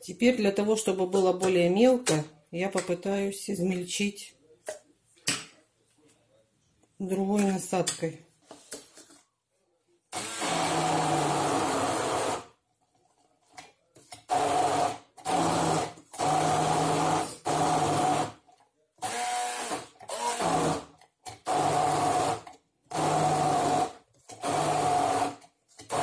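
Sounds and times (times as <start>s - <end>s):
stick blender running: 10.2s - 12.5s, 14.3s - 18.4s, 19.0s - 26.0s.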